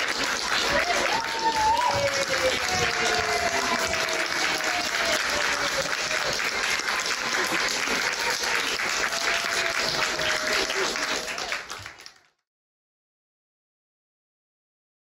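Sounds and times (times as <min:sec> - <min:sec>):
pitched calls from audience: 0:00.0 - 0:12.0
audience applauding: 0:00.0 - 0:12.4.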